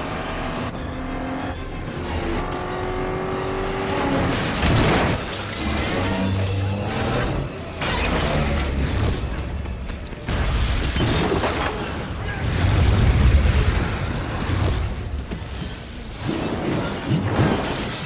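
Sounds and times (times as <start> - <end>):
film music: 0.0 - 12.7
explosion: 10.3 - 15.6.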